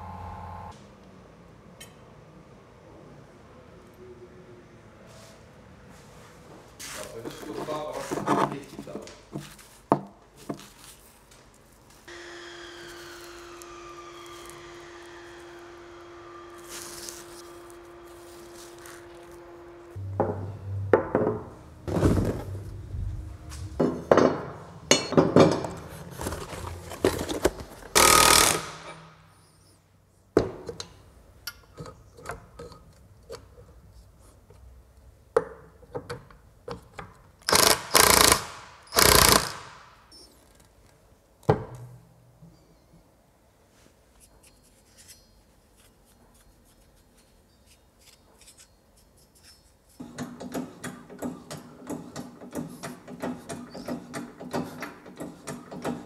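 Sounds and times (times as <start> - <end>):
power tool bursts: 12.1 - 16.7, 28.0 - 29.1, 37.5 - 39.9
tools clanking and knocking: 23.7 - 29.0, 50.0 - 56.0.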